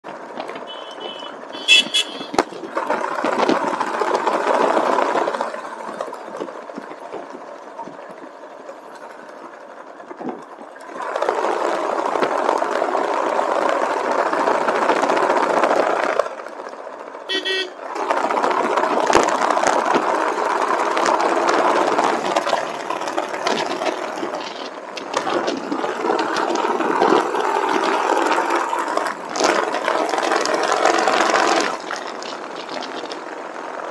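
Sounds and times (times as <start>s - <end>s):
motorcycle road noise: 0.0s - 33.9s
vehicle horn toots: 0.6s - 2.5s, 17.3s - 17.8s.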